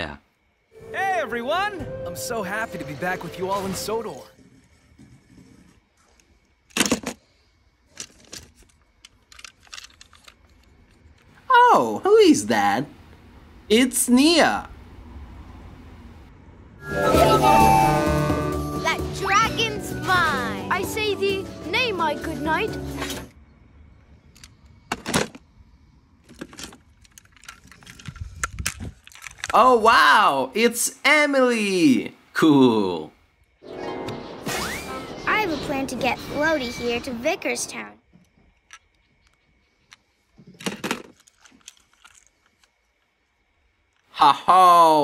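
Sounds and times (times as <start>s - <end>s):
plastic toys clicking and rattling: 7.9s - 11.4s, 26.2s - 29.6s, 38.6s - 43.0s.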